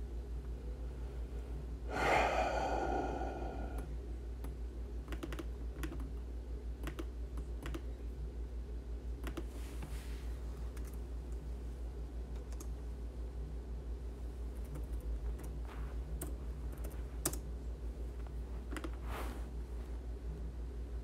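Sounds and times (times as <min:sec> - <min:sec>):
low hum: 0:00.5 - 0:04.2
keyboard and mouse clicks: 0:04.4 - 0:06.2, 0:06.8 - 0:07.9, 0:09.2 - 0:09.5, 0:18.7 - 0:19.0.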